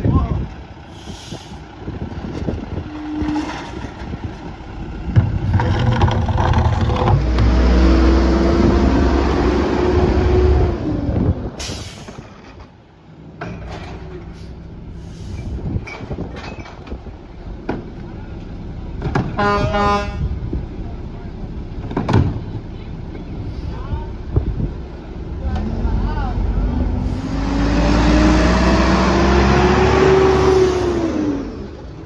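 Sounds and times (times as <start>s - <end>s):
truck idling: 0.0s - 8.3s, 11.1s - 32.0s
diesel truck engine revving: 0.4s - 12.2s, 17.4s - 32.0s
bins knocking: 5.1s - 7.6s.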